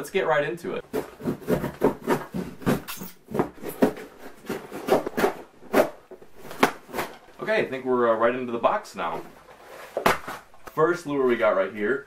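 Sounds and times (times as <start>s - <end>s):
blade sawing through cardboard: 0.9s - 6.0s.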